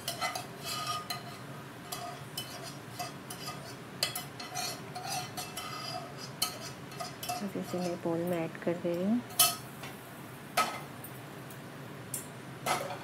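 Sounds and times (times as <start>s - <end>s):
spoon scraping a frying pan: 0.0s - 8.2s.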